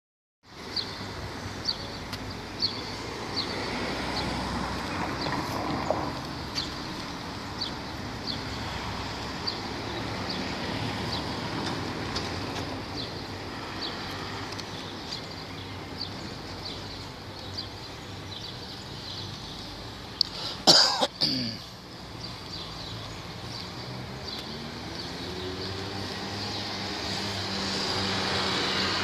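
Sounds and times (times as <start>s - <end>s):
road traffic hum: 0.4s - 29.0s.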